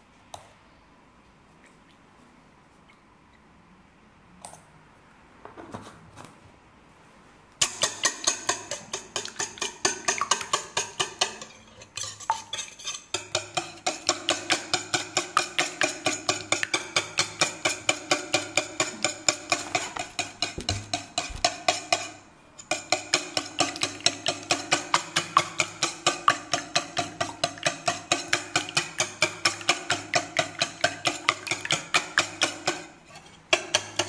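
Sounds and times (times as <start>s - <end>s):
whisk clicking against metal bowl: 7.6s - 34.0s.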